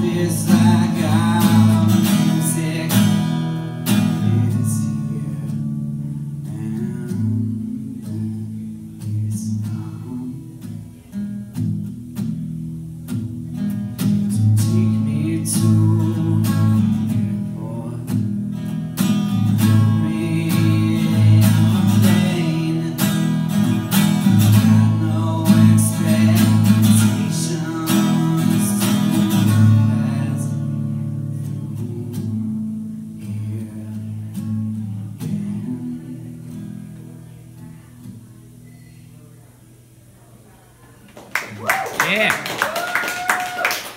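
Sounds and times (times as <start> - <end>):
man singing: 0.0 - 11.1, 14.3 - 18.4, 19.4 - 37.9
acoustic guitar blues: 0.0 - 40.1.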